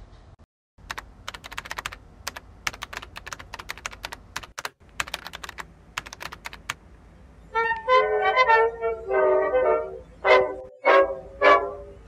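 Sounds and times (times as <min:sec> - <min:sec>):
rapid sharp clicks: 0:00.8 - 0:06.8.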